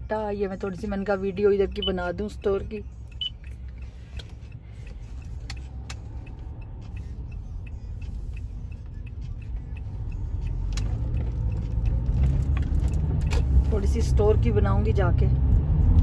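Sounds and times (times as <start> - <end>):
car road and engine rumble: 0.0 - 16.0.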